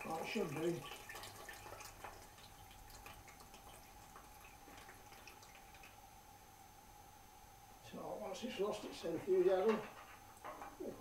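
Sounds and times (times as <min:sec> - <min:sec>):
water dripping into a bucket: 0:00.0 - 0:06.1.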